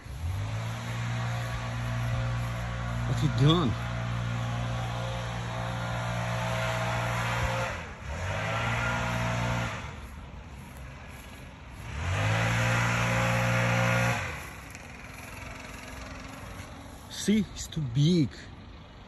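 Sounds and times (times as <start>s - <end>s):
small petrol engine revving: 0.0s - 17.3s.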